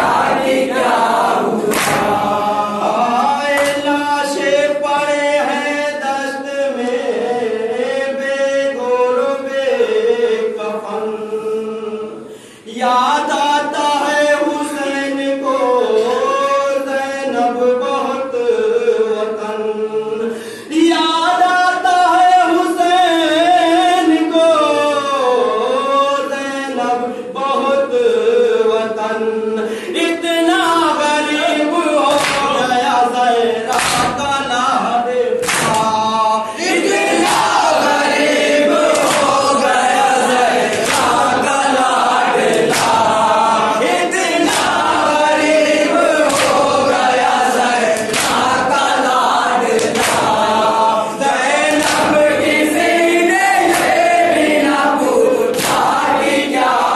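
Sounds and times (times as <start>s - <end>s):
lead singer through microphone: 0.0s - 56.9s
men chanting a lament: 0.0s - 56.9s.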